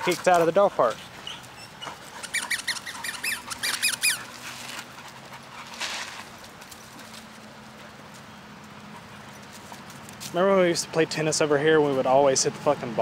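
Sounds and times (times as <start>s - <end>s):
puppy squealing yips: 1.2s - 4.4s.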